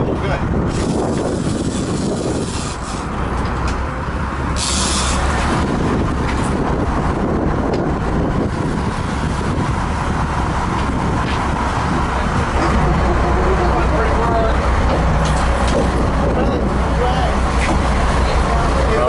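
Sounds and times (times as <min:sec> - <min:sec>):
boat engines rumbling: 0:00.0 - 0:19.0
water noise: 0:00.0 - 0:19.0
wind: 0:00.0 - 0:19.0
short high hiss: 0:04.6 - 0:05.3.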